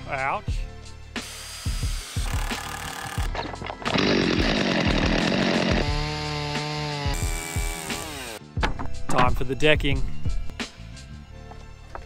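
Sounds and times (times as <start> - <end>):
chainsaw cutting wood: 1.2 - 8.4.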